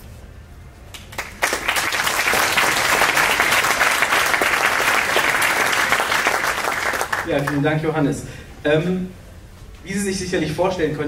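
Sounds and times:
audience applause: 0:01.0 - 0:07.6.

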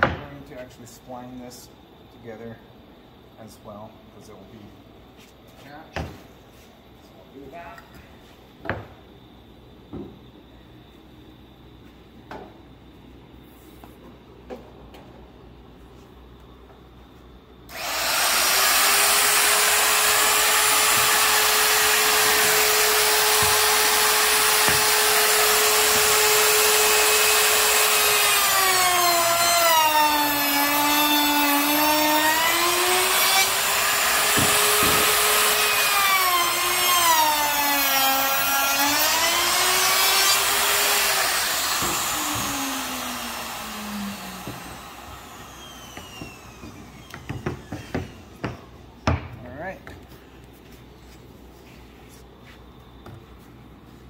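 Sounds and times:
power tool cutting wood: 0:17.7 - 0:48.3.

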